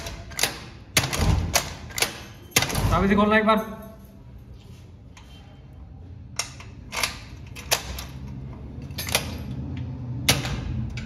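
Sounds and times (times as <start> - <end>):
door lock clicking: 0.0 - 3.0.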